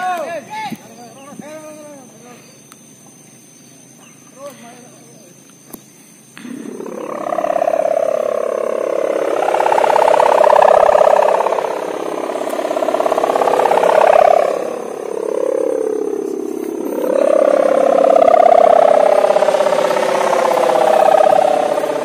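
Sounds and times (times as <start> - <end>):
kite hummer droning in wind: 6.4 - 22.0.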